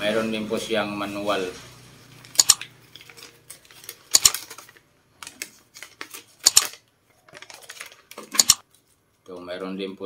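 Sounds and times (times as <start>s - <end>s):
paper rustling and crackling: 2.8s - 9.0s.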